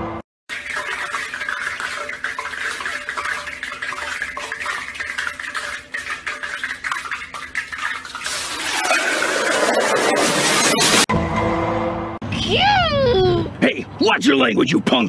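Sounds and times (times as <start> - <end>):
metal pot lid clinking: 0.5 - 10.2
crackling hiss from pot: 0.5 - 10.9.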